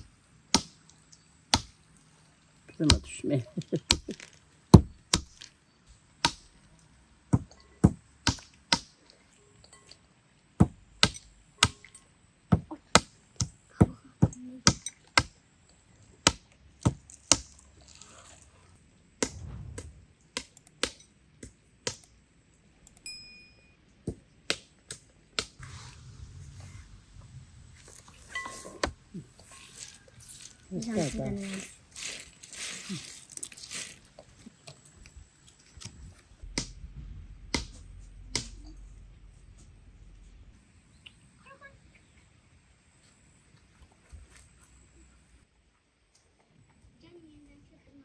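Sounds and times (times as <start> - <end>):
sharp hard knocks: 4.7 - 5.4.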